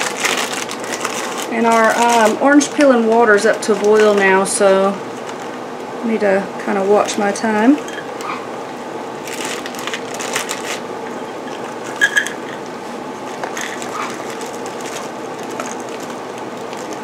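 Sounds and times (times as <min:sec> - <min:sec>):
water boiling in saucepan: 0:01.5 - 0:05.4.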